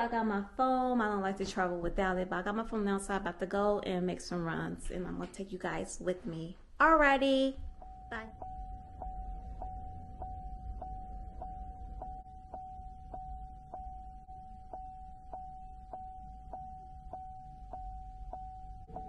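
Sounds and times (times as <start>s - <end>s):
low car hum: 7.6s - 19.0s
car turn signal ticking: 7.7s - 19.0s
steady high tone: 7.8s - 19.0s.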